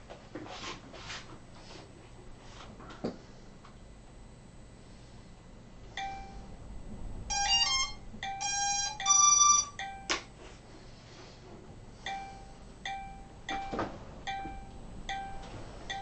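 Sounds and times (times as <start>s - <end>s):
electronic beeper tune: 6.0s - 10.2s
short electronic beeps: 7.3s - 10.0s.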